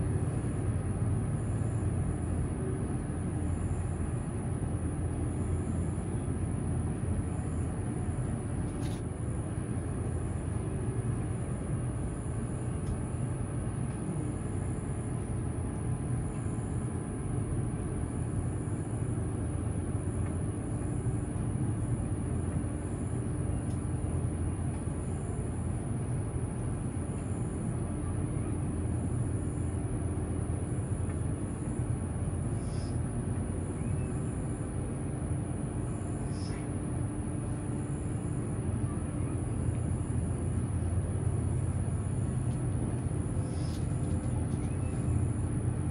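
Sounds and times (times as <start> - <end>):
faint steady hum: 0.0 - 45.9
low outdoor rumble: 0.0 - 45.9
high-pitched whine: 37.5 - 45.9.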